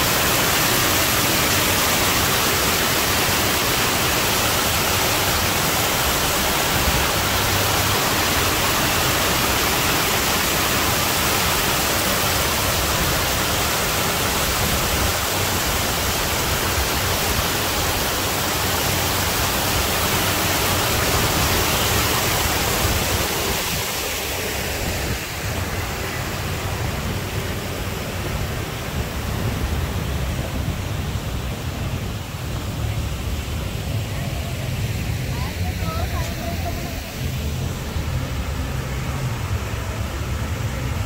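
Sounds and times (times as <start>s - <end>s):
loud rushing hiss: 0.0s - 30.0s.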